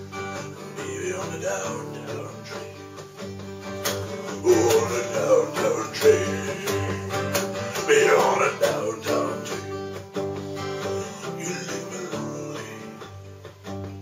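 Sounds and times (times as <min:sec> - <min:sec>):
acoustic guitar strumming: 0:00.0 - 0:14.0
man singing: 0:00.4 - 0:02.9, 0:04.2 - 0:10.0, 0:10.7 - 0:13.3.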